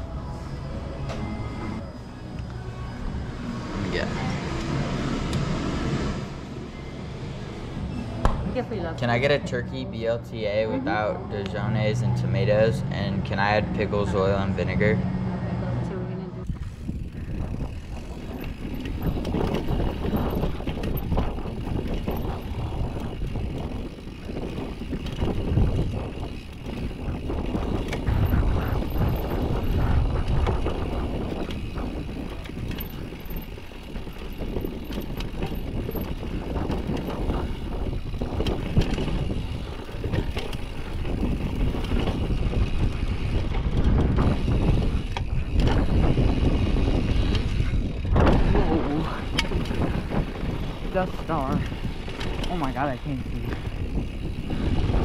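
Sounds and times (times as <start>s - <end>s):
wind on microphone: 10.8s - 55.0s
bike rattling and clicking: 16.4s - 55.0s
tyres rumbling over dirt: 16.8s - 55.0s.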